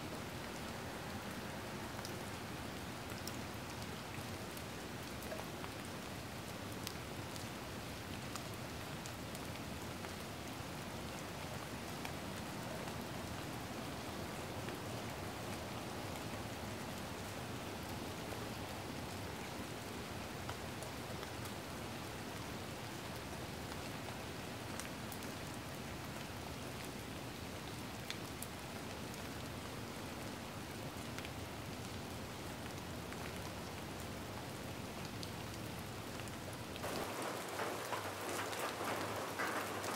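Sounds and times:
rain-like hiss: 0.0 - 39.9
faint ticks: 36.8 - 39.9.

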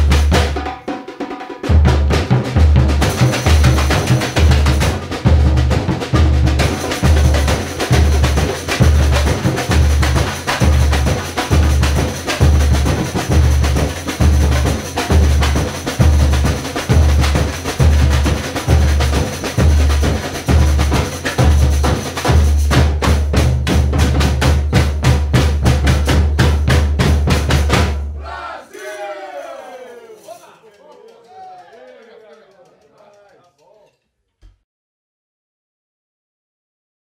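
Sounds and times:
drum roll: 0.0 - 28.1
snare drums: 0.0 - 31.1.

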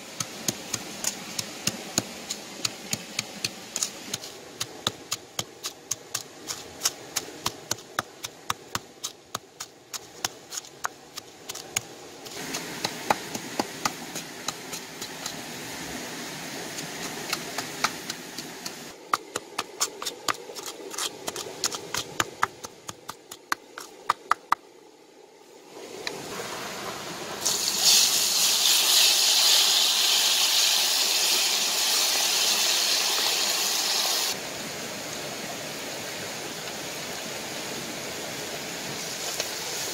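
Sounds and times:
wooden pestle pounding in mortar: 19.0 - 24.6
paste sizzling in hot oil: 27.4 - 34.4.

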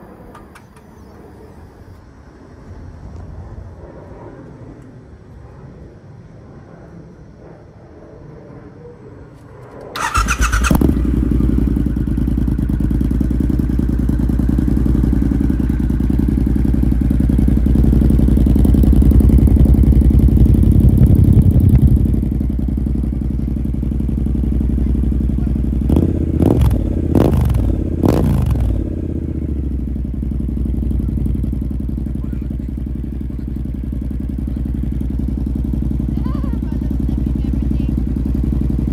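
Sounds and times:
motorcycle engine idling: 10.0 - 38.9.

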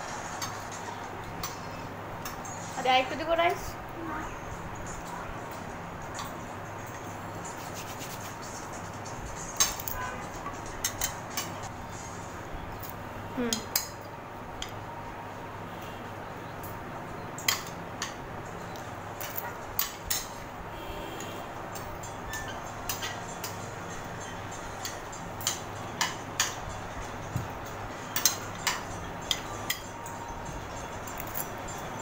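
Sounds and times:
steady background hum: 0.0 - 32.0
cutlery clinking on plates: 9.5 - 11.6, 19.2 - 20.4, 21.7 - 23.7, 28.1 - 29.9.

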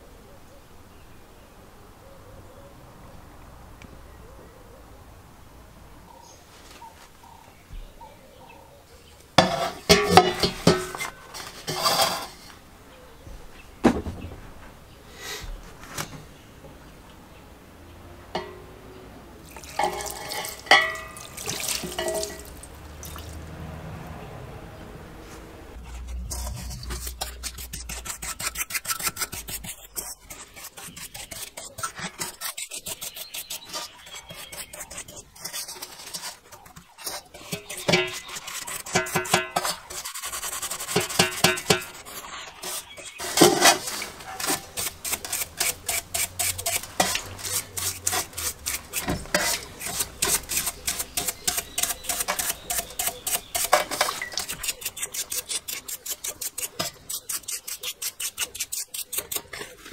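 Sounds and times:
stiff brush scrubbing metal tank: 9.4 - 12.6, 19.4 - 23.6, 25.8 - 59.9.

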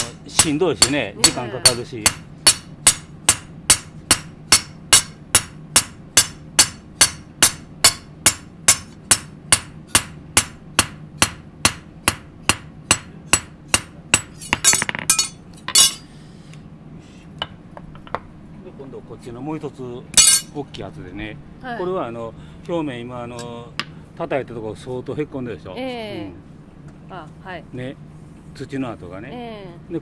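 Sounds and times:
hammer striking steel on anvil: 0.0 - 16.0, 20.2 - 20.5
metal tools clattering: 14.4 - 16.1, 20.2 - 20.5.

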